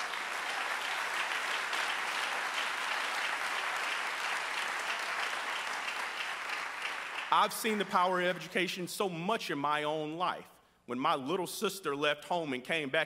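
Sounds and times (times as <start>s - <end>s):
congregation applauding: 0.0s - 8.7s.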